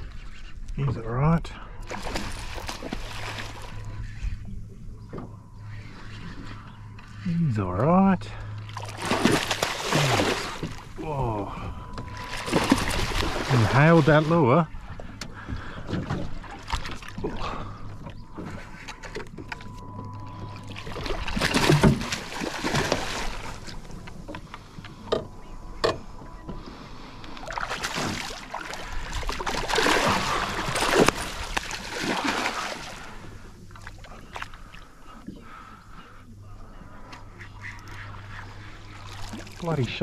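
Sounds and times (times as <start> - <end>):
fish splashing in water: 8.6 - 10.9, 12.1 - 14.4, 20.6 - 23.8, 27.4 - 34.6.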